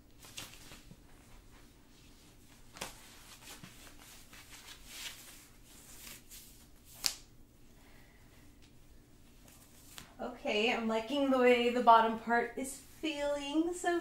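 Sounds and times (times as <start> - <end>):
fabric and straps rustling: 0.1 - 7.1.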